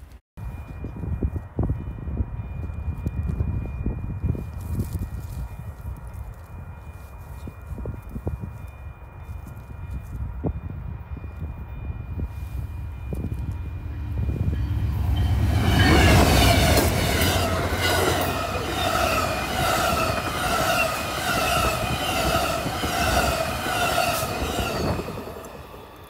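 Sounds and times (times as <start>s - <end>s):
passenger train passing at speed: 0.4s - 26.0s
pulsing ringing: 6.7s - 26.0s.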